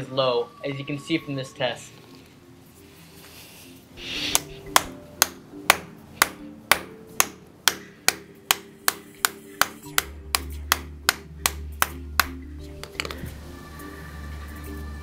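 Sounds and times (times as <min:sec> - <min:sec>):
hammer knocking plastic buckle: 0:04.8 - 0:13.2.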